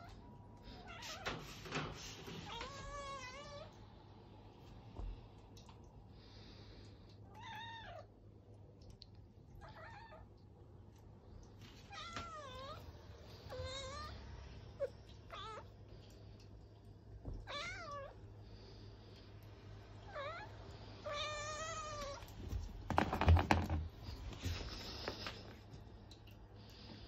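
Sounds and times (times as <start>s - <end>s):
cats meowing: 2.3s - 3.8s, 11.8s - 15.7s, 17.3s - 18.3s, 20.0s - 22.4s.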